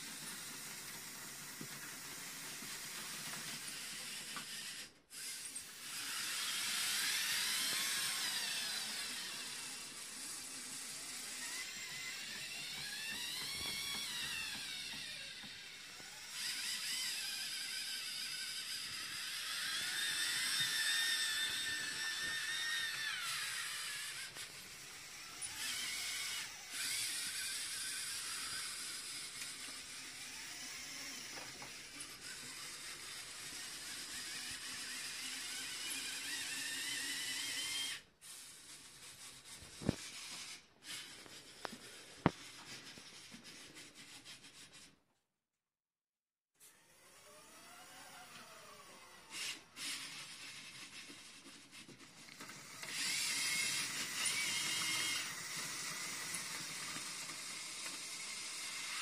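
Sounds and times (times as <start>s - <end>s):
toy motors whining: 0.0s - 45.0s, 46.6s - 59.0s.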